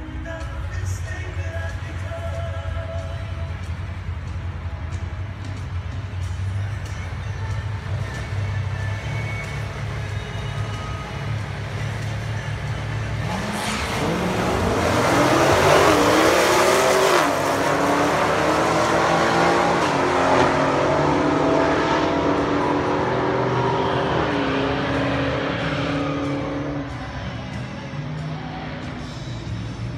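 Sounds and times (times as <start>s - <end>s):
drag car engines idling: 0.0s - 15.7s
car engines accelerating hard: 3.0s - 29.9s.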